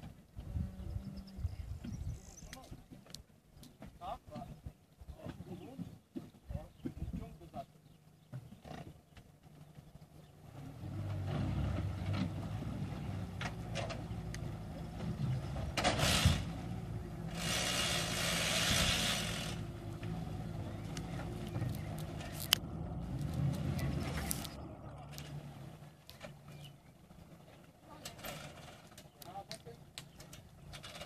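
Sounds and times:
outboard motor humming: 7.0s - 29.1s
hissing rush: 17.3s - 19.7s.

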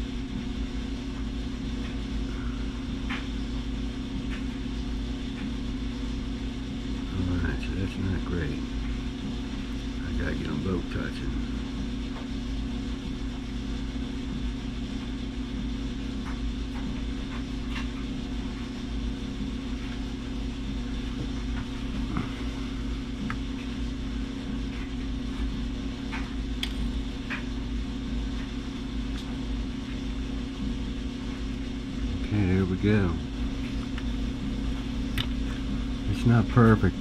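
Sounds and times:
low machine hum: 0.0s - 37.0s.

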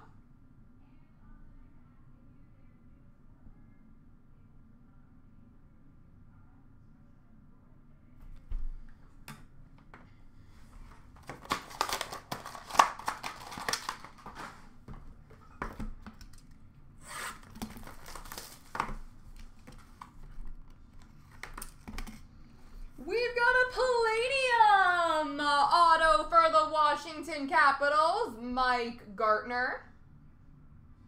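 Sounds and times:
plastic wrappers crinkling and tearing: 10.8s - 14.8s, 17.2s - 22.2s.

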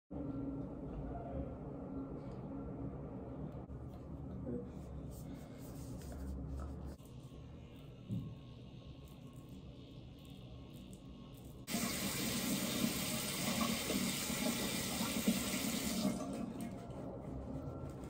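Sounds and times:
water running into a basin: 11.7s - 16.7s.

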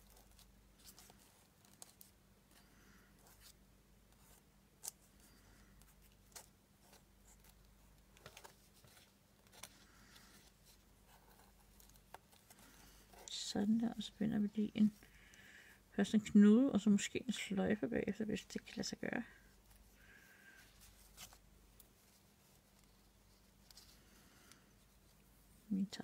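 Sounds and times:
low steady hum: 0.0s - 26.0s
paper rustling: 19.6s - 25.0s.

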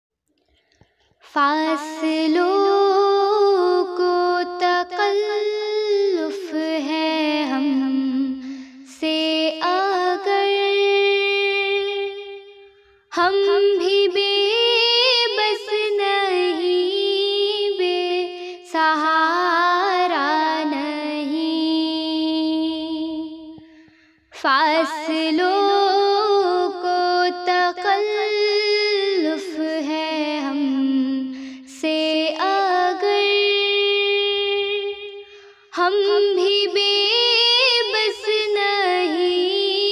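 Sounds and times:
girl singing devotional song: 0.8s - 39.9s
girl breathing: 8.4s - 8.9s, 23.7s - 24.3s, 31.3s - 31.7s, 35.2s - 35.7s.

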